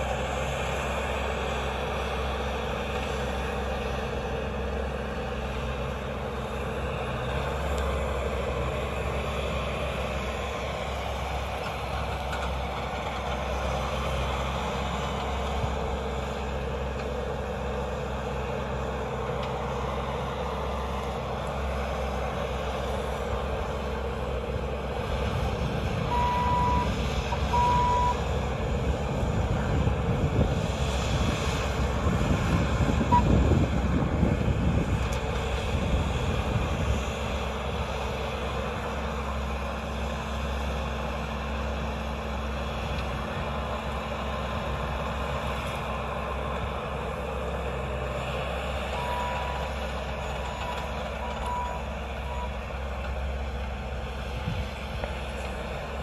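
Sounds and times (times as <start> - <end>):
diesel engine running: 0.0 - 56.0
backup alarm beeps: 27.5 - 28.2.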